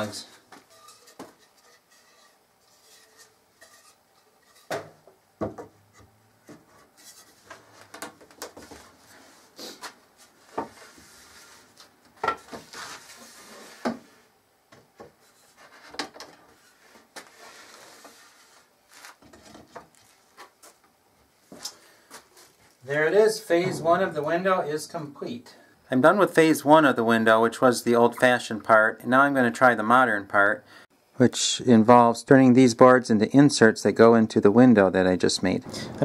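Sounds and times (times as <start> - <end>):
wood rubbing and sliding: 10.2 - 14.2, 15.0 - 20.5.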